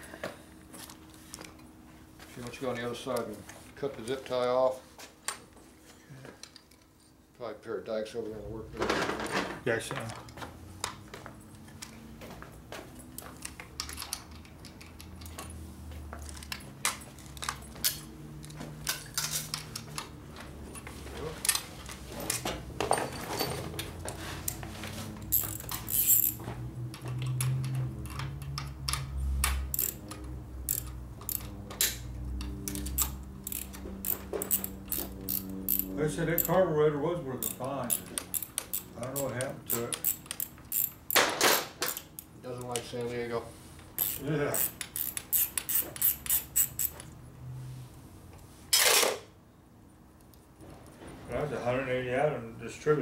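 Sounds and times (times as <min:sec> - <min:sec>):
socket wrench on nut: 0:25.3 - 0:26.4, 0:29.4 - 0:32.0, 0:32.7 - 0:36.6, 0:37.4 - 0:42.3, 0:44.0 - 0:47.0.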